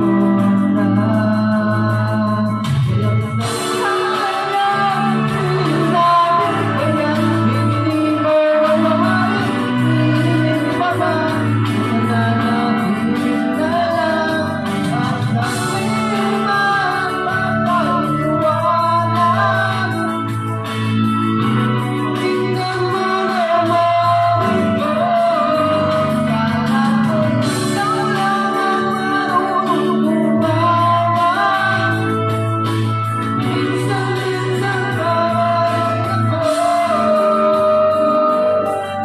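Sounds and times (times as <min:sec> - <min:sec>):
person singing into microphone: 0:00.0 - 0:39.0
band accompaniment: 0:02.5 - 0:39.0.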